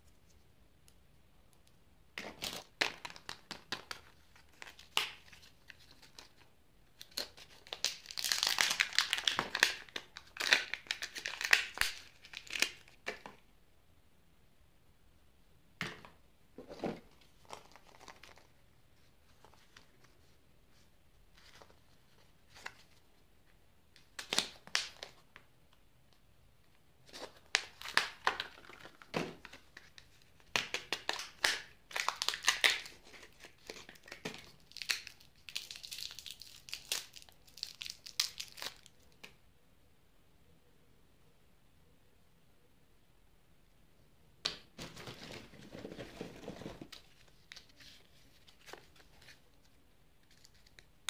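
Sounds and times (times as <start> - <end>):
foil wrapper crinkling and tearing: 7.0 - 12.9, 30.4 - 39.0.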